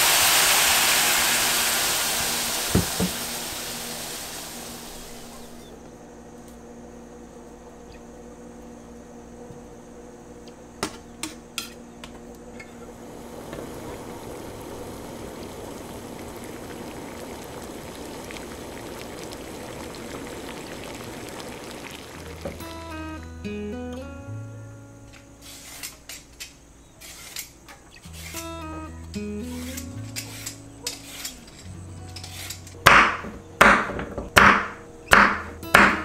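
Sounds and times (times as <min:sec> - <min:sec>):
liquid simmering in a pan: 0:00.0 - 0:05.7, 0:12.6 - 0:23.2
faint steady hum: 0:00.0 - 0:36.0.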